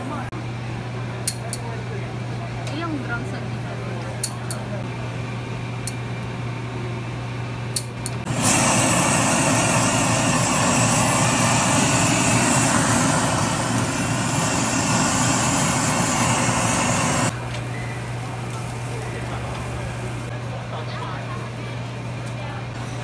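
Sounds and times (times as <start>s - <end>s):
blow torch flame hissing: 8.2s - 20.3s.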